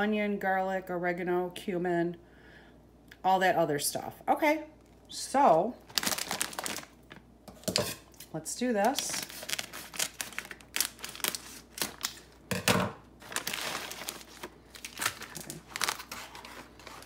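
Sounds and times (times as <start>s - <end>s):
plastic bag crinkling: 5.8s - 12.5s, 13.2s - 17.0s.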